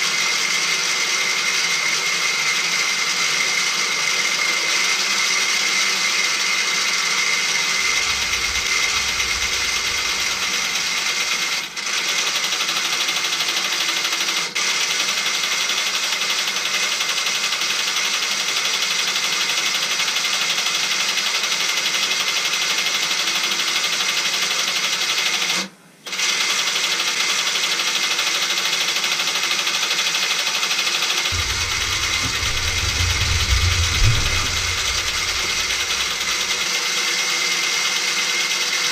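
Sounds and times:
low hum: 7.7s - 11.3s, 31.3s - 36.6s.

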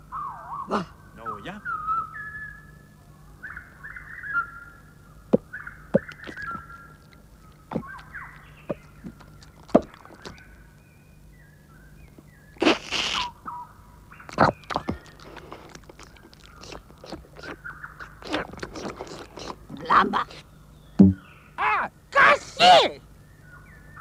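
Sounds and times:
cartoon knocks: 21.0s - 21.3s.

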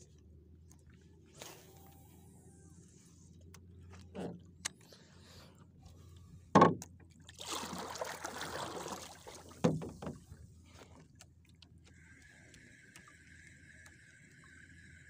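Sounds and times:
fishing gear knocking on wooden boat: 6.5s - 6.9s, 9.6s - 10.3s.

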